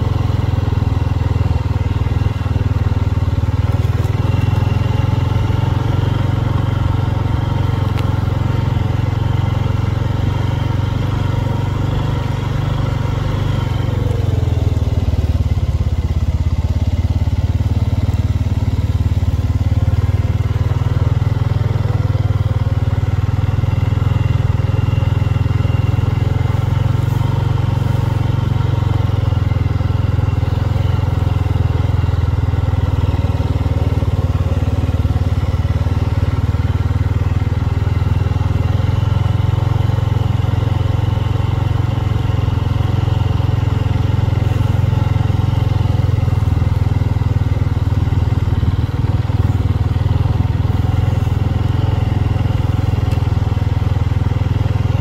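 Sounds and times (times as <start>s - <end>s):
atv engine running steadily: 0.0s - 55.0s.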